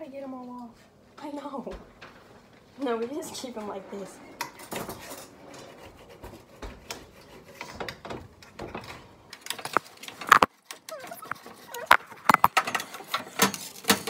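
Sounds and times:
utensils scraping a baking sheet: 3.3 - 8.0.

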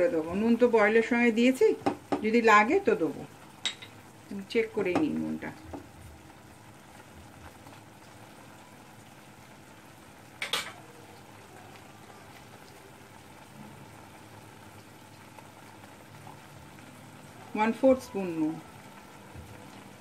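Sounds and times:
food bubbling in a pan: 0.0 - 20.0.

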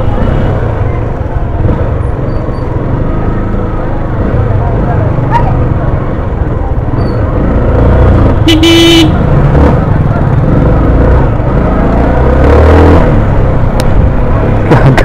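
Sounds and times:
motorcycle engine running: 0.0 - 12.4
street chatter: 0.0 - 15.0
vehicle horn toot: 8.4 - 9.2.

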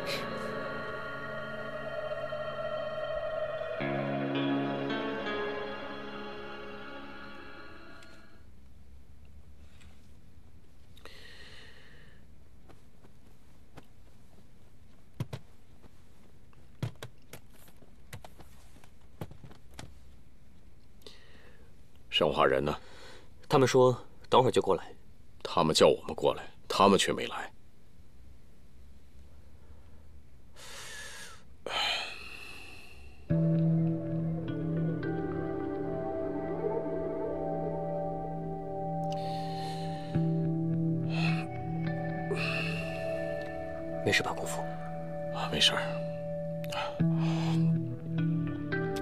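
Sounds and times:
ambient music with sustained tones: 0.0 - 8.4, 33.3 - 49.0.

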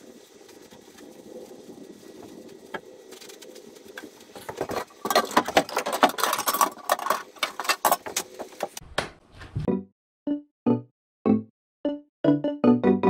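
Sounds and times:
objects clattering in plastic tote: 4.4 - 8.8.

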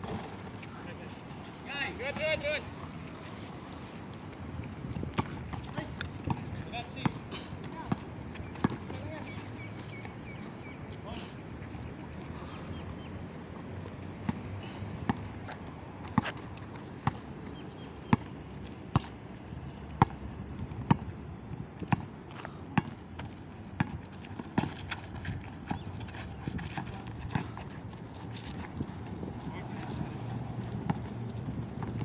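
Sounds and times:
basketball bouncing on asphalt: 4.8 - 7.2, 7.8 - 9.4, 14.2 - 19.2, 20.0 - 32.0.

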